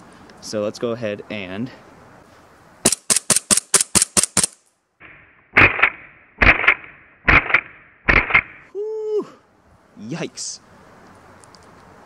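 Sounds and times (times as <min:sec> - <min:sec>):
airsoft pistol shots: 0:02.8 - 0:04.6, 0:05.6 - 0:08.6.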